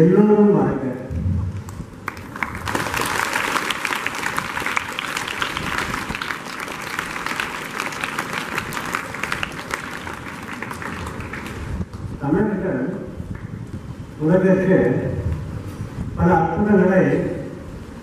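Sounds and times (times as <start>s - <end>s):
children applauding: 2.0s - 11.9s.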